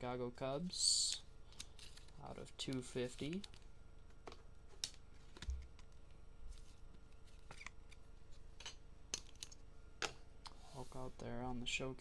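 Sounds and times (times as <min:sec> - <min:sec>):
cards slapping and shuffling: 0:01.1 - 0:08.0.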